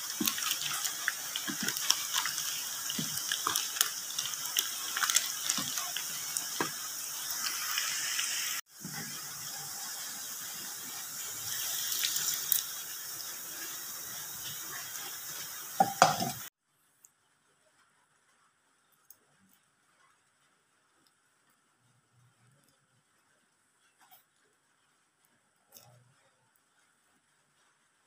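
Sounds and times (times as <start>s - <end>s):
fish deep-frying in oil: 0.0s - 16.6s.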